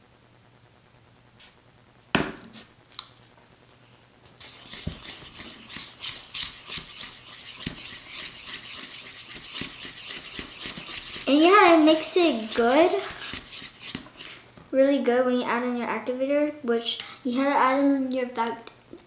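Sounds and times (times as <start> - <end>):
spoon scraping slime in bowl: 4.4 - 14.4.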